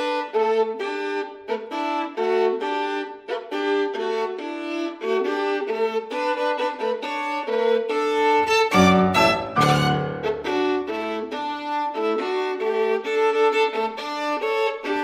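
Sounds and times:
violin melody: 0.0s - 15.0s
deeper busier string notes: 8.4s - 10.9s.

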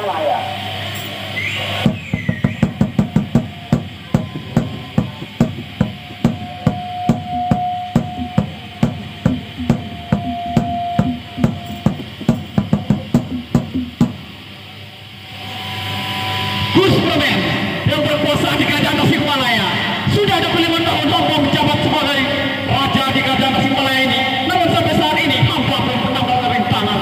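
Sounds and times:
drums struck in quick rhythm: 1.8s - 14.4s
held high note: 3.5s - 14.0s.

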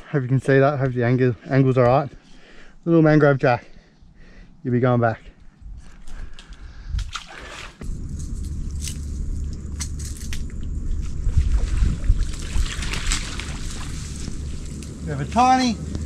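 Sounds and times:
water sloshing and dripping: 6.0s - 15.0s
wind on microphone: 7.8s - 15.0s.

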